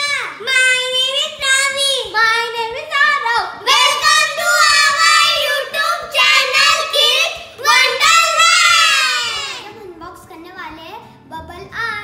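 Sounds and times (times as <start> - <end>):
children singing together: 3.6 - 9.6.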